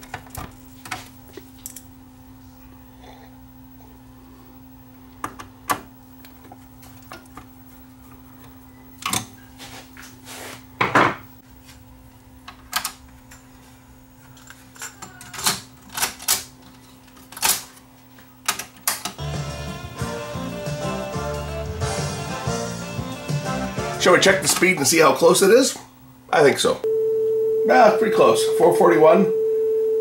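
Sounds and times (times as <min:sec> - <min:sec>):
faint steady hum: 0:00.0 - 0:15.9, 0:24.4 - 0:30.0.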